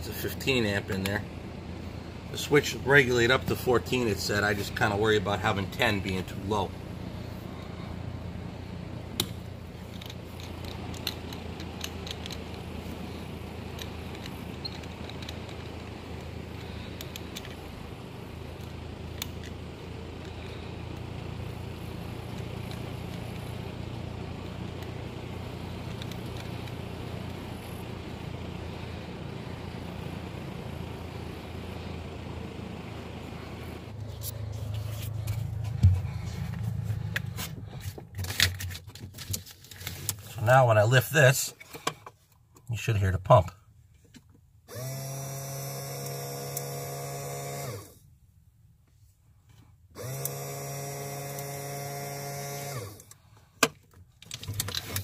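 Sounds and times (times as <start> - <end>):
steady low hum: 0.0 - 44.0.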